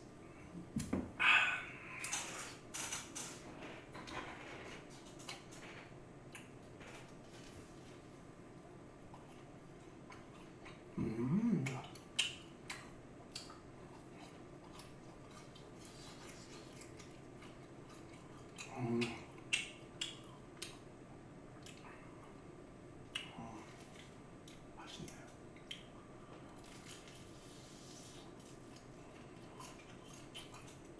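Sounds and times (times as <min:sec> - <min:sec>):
person humming: 0:10.9 - 0:12.0, 0:18.6 - 0:19.3
crunchy chewing: 0:11.6 - 0:20.9, 0:23.1 - 0:30.9.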